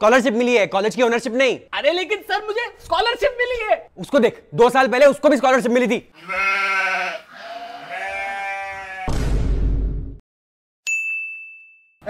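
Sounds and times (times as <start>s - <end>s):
bright ding: 10.9s - 12.0s.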